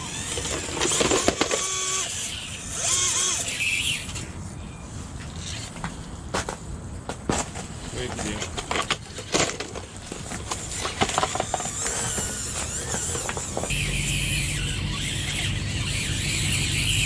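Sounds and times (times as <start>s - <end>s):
toy truck electric motor whining: 0.0s - 4.4s, 9.2s - 17.0s.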